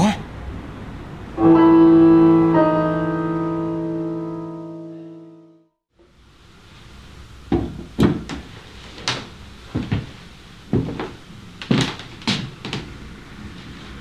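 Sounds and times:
footsteps on hard floor: 0:09.8 - 0:12.9.

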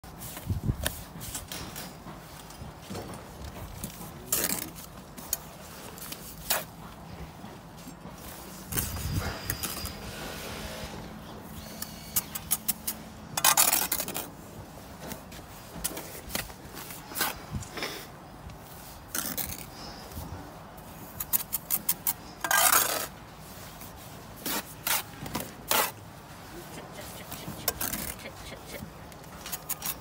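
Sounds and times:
trowel scraping mortar: 0:08.7 - 0:14.4, 0:20.9 - 0:26.0, 0:26.7 - 0:30.0.

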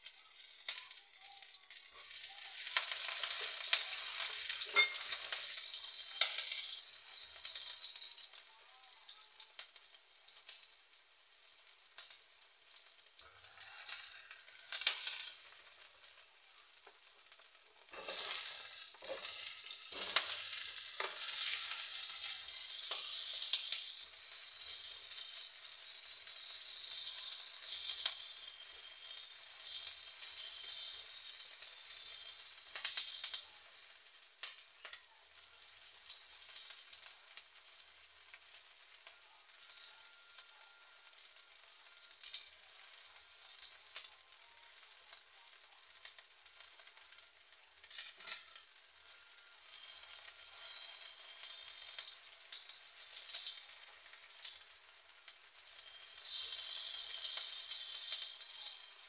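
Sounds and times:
food sizzling in hot oil: 0:00.0 - 0:59.0
spatula scraping wok: 0:01.4 - 0:08.4, 0:12.8 - 0:16.2, 0:16.8 - 0:35.0, 0:47.8 - 0:54.6, 0:55.4 - 0:59.0.

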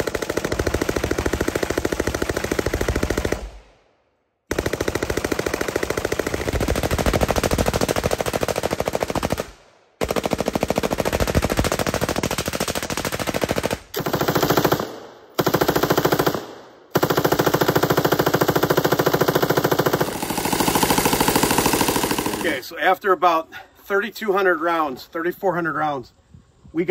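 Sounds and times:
machine gun bursts: 0:17.0 - 0:22.7.

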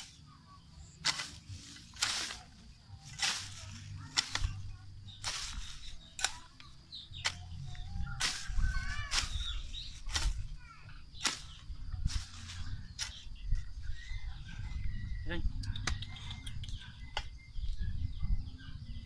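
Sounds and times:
hoe chopping into soil: 0:01.0 - 0:10.5, 0:11.2 - 0:13.3.

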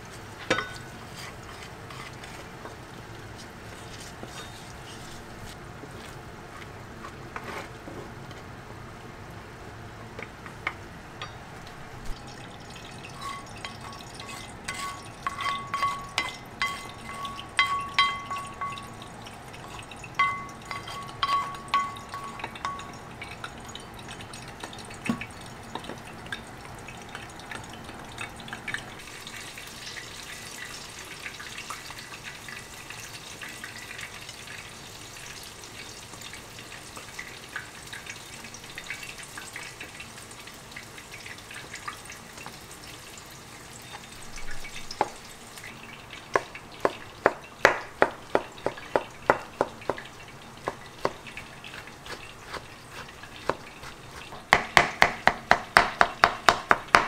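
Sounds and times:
peeling eggplant skins by hand: 0:00.9 - 0:07.8, 0:46.3 - 0:57.0
knife tapping on cutting board: 0:46.3 - 0:51.2, 0:54.4 - 0:57.0.

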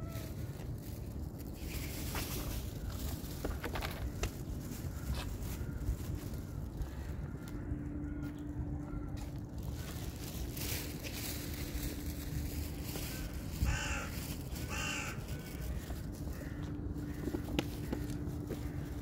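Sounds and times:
crow cawing: 0:06.8 - 0:09.9, 0:13.0 - 0:19.0.

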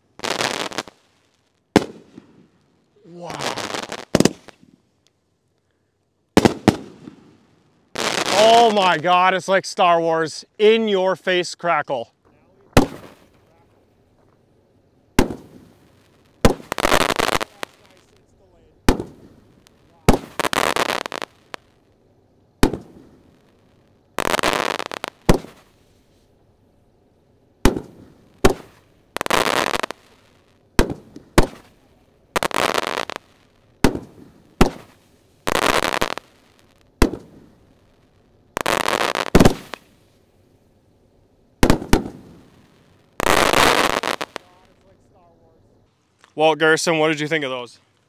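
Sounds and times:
firework crackling: 0:00.0 - 0:05.2, 0:06.3 - 0:14.4, 0:15.1 - 0:48.0
firework booms: 0:01.7 - 0:02.6, 0:03.2 - 0:04.8, 0:06.4 - 0:09.3, 0:12.3 - 0:13.8, 0:15.1 - 0:21.8, 0:22.6 - 0:26.2, 0:27.6 - 0:40.2, 0:41.6 - 0:45.0.

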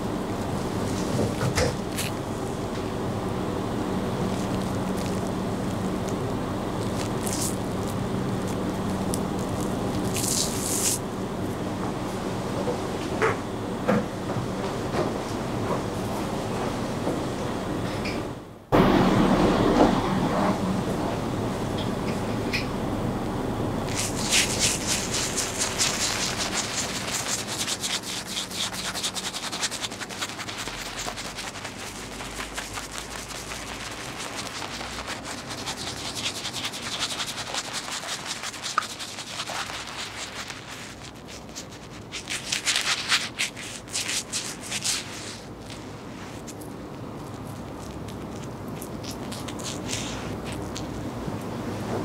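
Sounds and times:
razor scraping stubble: 0:23.9 - 0:45.8.

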